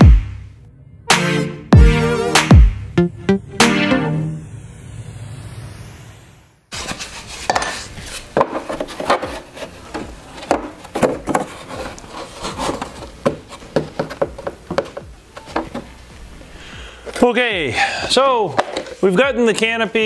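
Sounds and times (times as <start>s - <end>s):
background music: 0.0s - 4.5s
wooden knocks and taps: 13.2s - 15.9s.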